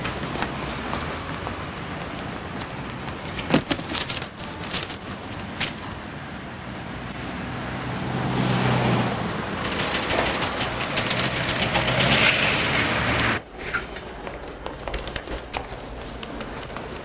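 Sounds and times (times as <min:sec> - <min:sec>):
city street traffic: 0:00.0 - 0:17.0
newspaper rustling: 0:02.6 - 0:05.9, 0:14.4 - 0:17.0
passing vehicle hum: 0:04.5 - 0:13.4.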